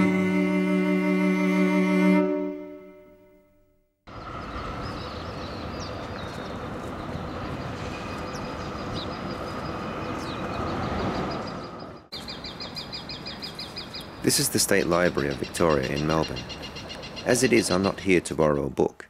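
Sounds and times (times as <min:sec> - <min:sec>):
city street noise: 0:04.1 - 0:19.0.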